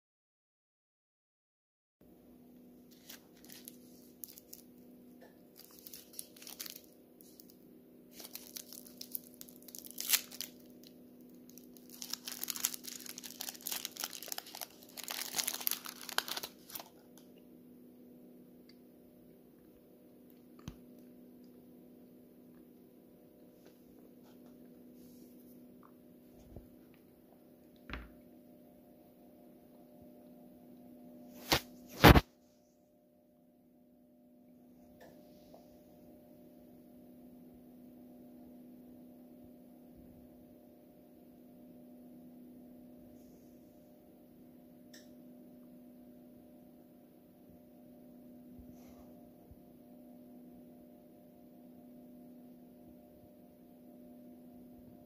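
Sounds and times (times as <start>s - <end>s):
faint steady hum: 2.0s - 55.0s
foil candy wrapper crinkling: 2.9s - 17.3s, 31.4s - 32.2s.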